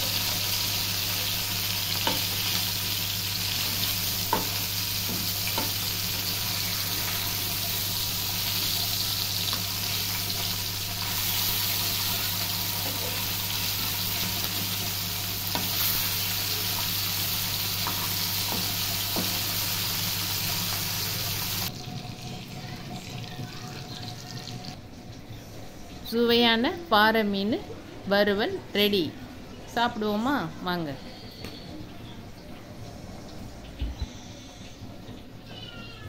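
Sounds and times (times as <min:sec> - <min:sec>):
fish sizzling in hot oil: 0:00.0 - 0:22.8.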